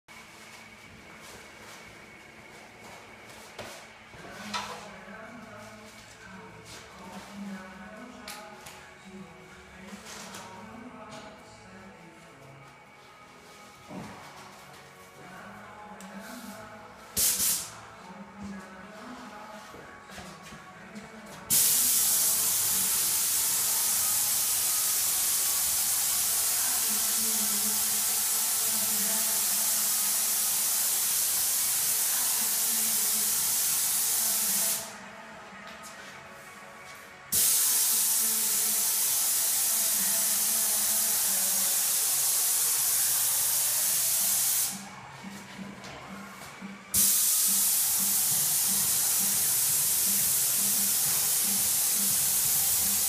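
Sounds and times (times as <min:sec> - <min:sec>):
paint spray gun hissing: 0:17.2 - 0:17.7, 0:21.5 - 0:35.0, 0:37.3 - 0:44.8, 0:47.0 - 0:53.0.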